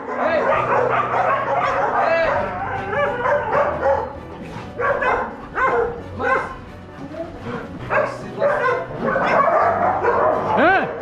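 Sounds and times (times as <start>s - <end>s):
background music: 0.0s - 11.0s
dogs barking and yelping: 0.0s - 11.0s.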